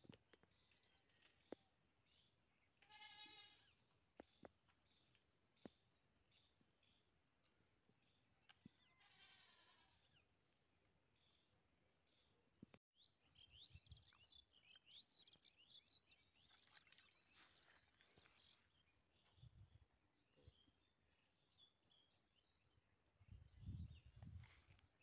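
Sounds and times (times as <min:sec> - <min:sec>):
small birds chirping: 0:11.2 - 0:25.0.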